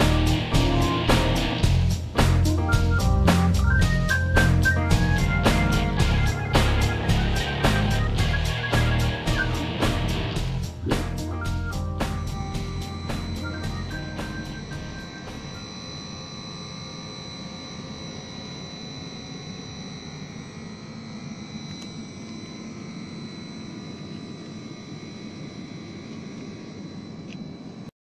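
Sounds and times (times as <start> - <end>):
compressor hum: 0.0 - 27.9
high constant whine: 0.0 - 27.9.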